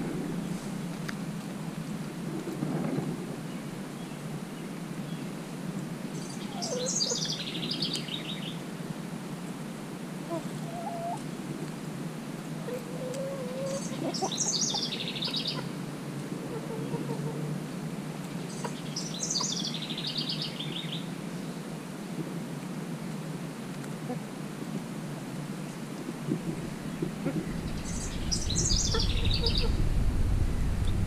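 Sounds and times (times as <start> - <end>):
songbird trilling: 6.2 - 8.5, 13.7 - 15.7, 18.5 - 21.0, 26.8 - 29.8
hens calling softly: 10.2 - 11.3, 12.6 - 17.6, 26.0 - 29.8.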